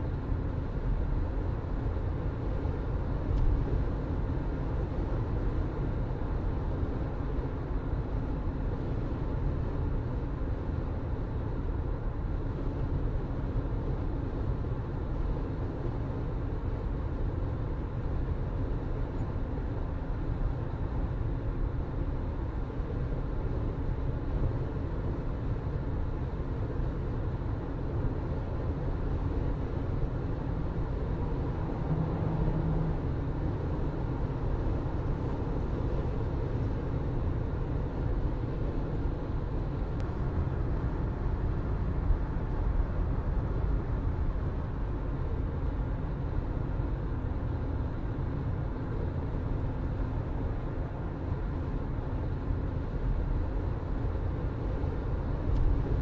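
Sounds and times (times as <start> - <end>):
car engine hum: 22.5 - 56.0
tyre road rumble: 27.9 - 49.1.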